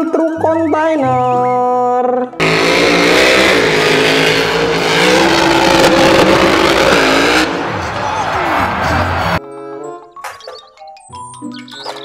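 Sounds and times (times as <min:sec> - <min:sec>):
truck engine revving: 0:02.4 - 0:09.4.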